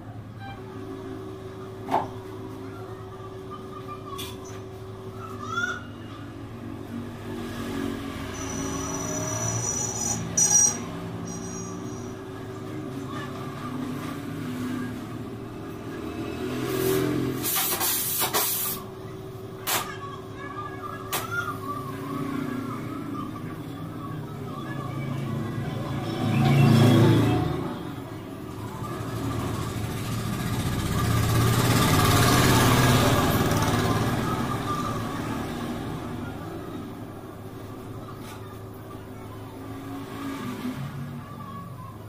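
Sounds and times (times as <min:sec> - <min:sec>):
vehicle engine passing by: 0:06.6 - 0:17.6, 0:24.4 - 0:38.1, 0:39.3 - 0:42.0
gas welding torch hissing: 0:17.4 - 0:18.9.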